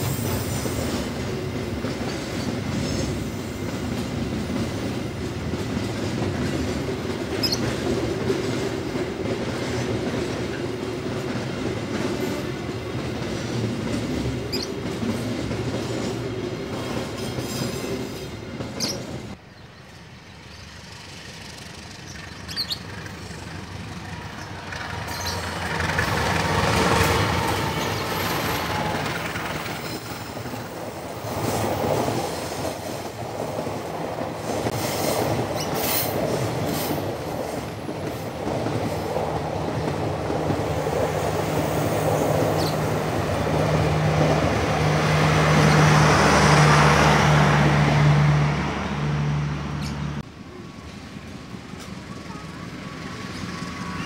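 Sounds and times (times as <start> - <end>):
train wheels clattering and squealing: 0.0 - 19.4, 21.2 - 43.4
diesel locomotive passing: 0.0 - 54.0.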